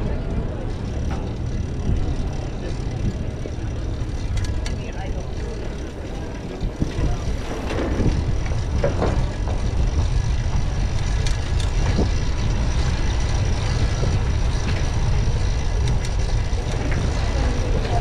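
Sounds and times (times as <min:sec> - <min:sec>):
bicycle tyre noise: 0:00.0 - 0:18.0
wind rumble on microphone: 0:00.0 - 0:18.0.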